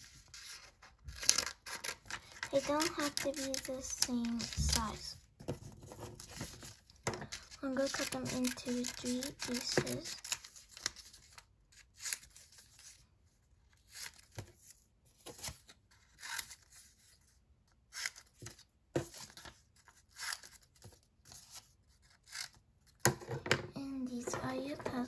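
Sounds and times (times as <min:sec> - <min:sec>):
paper rustling: 0:00.0 - 0:11.4
scissors snipping paper: 0:00.3 - 0:05.1, 0:07.3 - 0:11.4.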